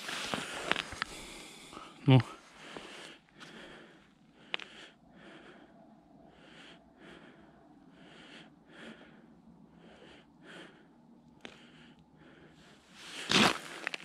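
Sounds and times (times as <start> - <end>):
footsteps crunching on snow: 13.1 - 14.0.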